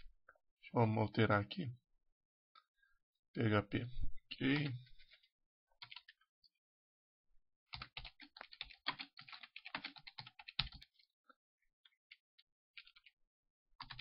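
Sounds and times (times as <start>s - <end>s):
typing on computer keyboard: 5.8s - 6.2s, 7.7s - 10.9s, 12.8s - 13.1s, 13.8s - 14.0s.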